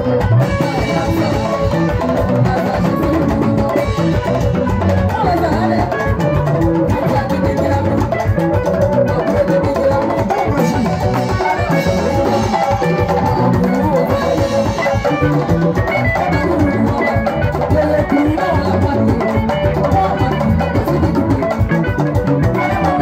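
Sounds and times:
drums and percussion beat: 0:00.0 - 0:23.0
person singing into microphone: 0:00.0 - 0:23.0.

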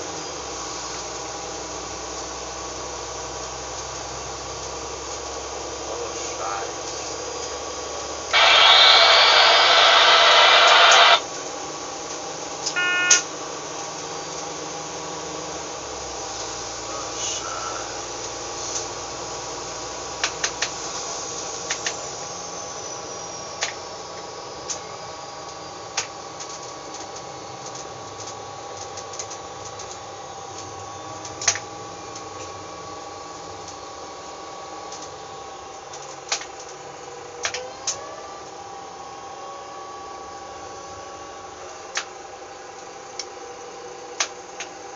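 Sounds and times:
railcar engine drone: 0:00.0 - 0:44.9
sharp clicks: 0:08.4 - 0:11.2
short tone: 0:12.7 - 0:13.3.

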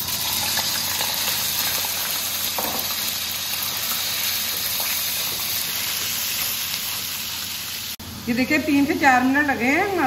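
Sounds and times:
chicken sizzling in hot oil: 0:00.0 - 0:08.0.

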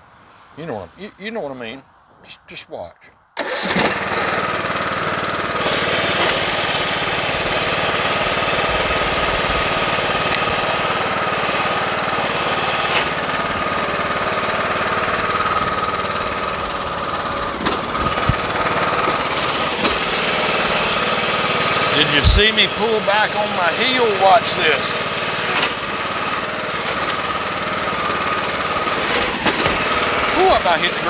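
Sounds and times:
lawn tractor engine running: 0:03.4 - 0:31.0.

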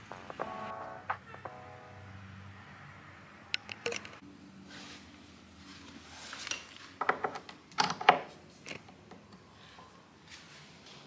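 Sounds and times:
metallic clicks and knocks: 0:03.5 - 0:04.2.

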